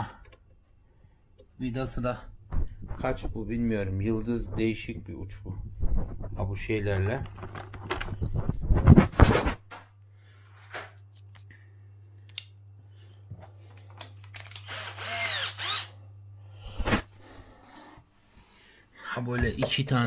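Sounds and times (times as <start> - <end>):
power drill driving screws: 14.4 - 16.0.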